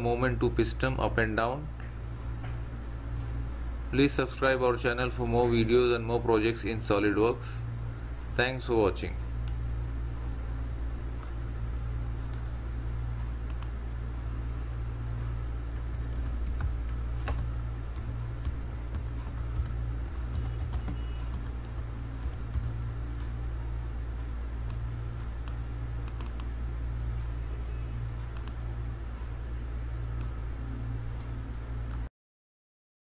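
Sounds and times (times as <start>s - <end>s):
steady low hum: 0.0s - 32.1s
keyboard typing: 15.7s - 22.8s.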